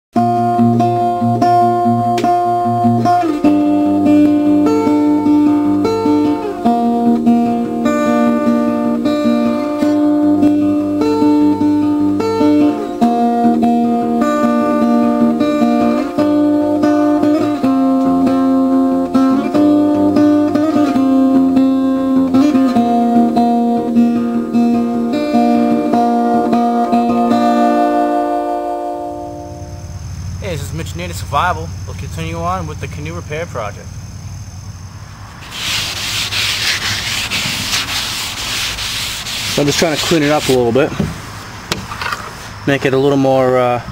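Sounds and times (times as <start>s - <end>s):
acoustic guitar chords: 0.2s - 33.4s.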